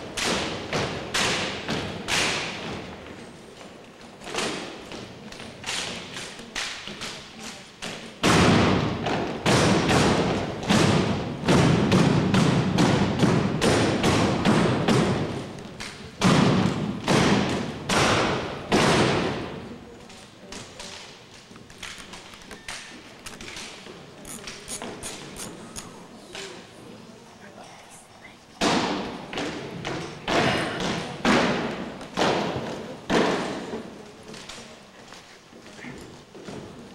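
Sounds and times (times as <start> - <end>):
hands slapping rifles: 5.3 - 8.5, 12.4 - 19.2.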